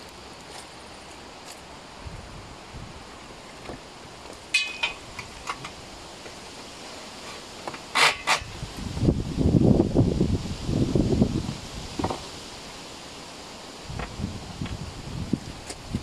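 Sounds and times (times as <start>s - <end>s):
wind buffeting microphone: 2.0s - 3.2s, 8.4s - 12.3s, 13.8s - 16.0s
ringing metal clink: 4.6s - 5.0s.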